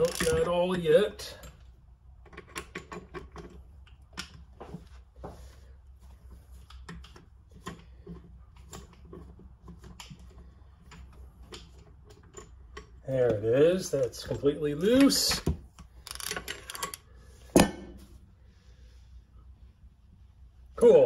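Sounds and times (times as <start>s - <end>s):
ratchet wrench clicking: 0.0s - 0.4s, 16.0s - 17.0s.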